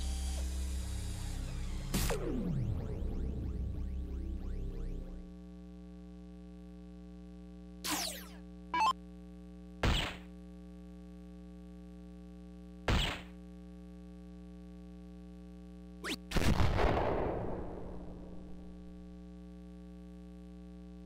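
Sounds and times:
electronic falling sweep: 0:00.0 - 0:05.2, 0:07.9 - 0:09.0, 0:16.0 - 0:16.3
electrical hum: 0:00.0 - 0:16.7
sharp electronic hit effects: 0:00.6 - 0:05.2, 0:07.9 - 0:08.9
short electronic blip: 0:07.9 - 0:09.0, 0:16.0 - 0:16.3.

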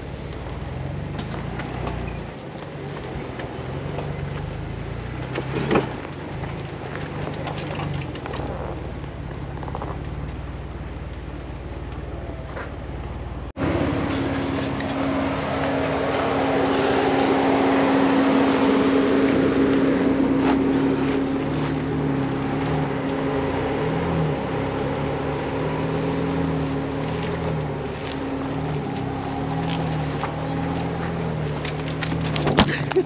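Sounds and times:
vehicle engine at low revs: 0:00.0 - 0:33.0
tyre and suspension clicks: 0:01.1 - 0:12.8, 0:27.0 - 0:33.0.

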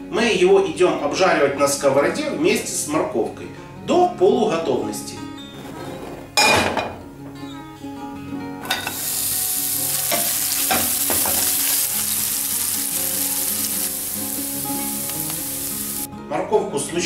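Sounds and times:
vegetables sizzling in oil: 0:08.6 - 0:16.1.

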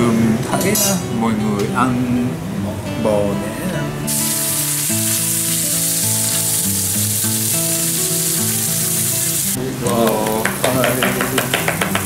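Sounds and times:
beef sizzling in hot oil: 0:04.1 - 0:11.6.

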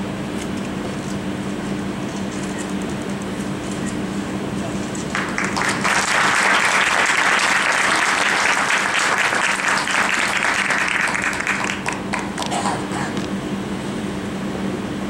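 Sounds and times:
low electrical hum: 0:00.0 - 0:15.0
audience applauding: 0:05.1 - 0:12.5.

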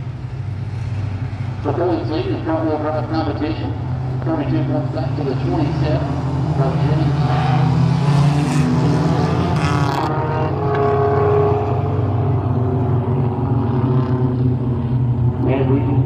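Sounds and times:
race car engines revving: 0:00.0 - 0:16.0.

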